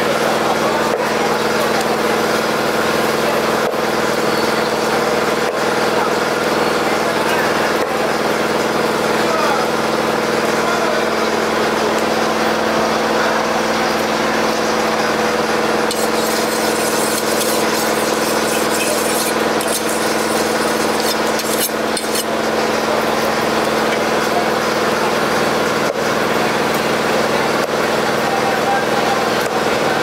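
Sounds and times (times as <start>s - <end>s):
small engine humming: 15.8s - 24.6s
knife scraping on sharpening bar: 15.9s - 22.3s.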